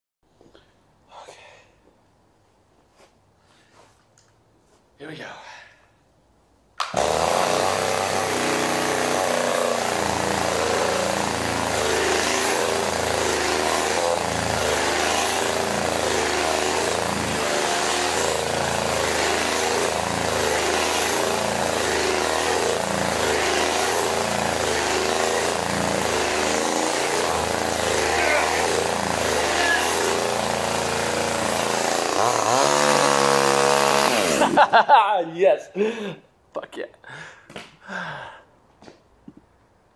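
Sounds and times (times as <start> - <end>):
chainsaw engine running: 6.9 - 34.9.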